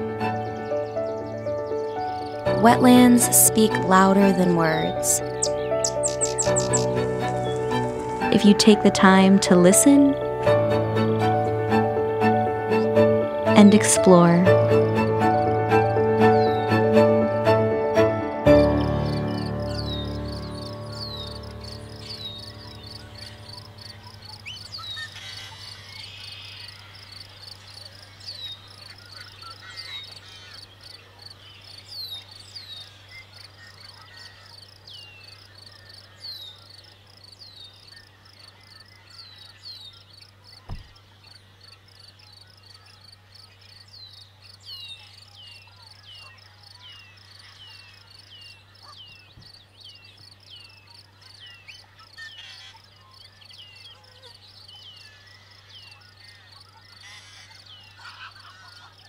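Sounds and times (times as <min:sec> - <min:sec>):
insects chorus: 0:03.7 - 0:08.9, 0:18.6 - 0:59.0.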